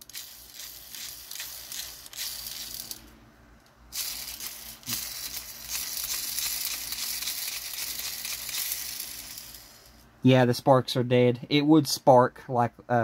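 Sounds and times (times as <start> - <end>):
spark striker scratchy crackle: 0.0 - 3.1, 3.9 - 10.1.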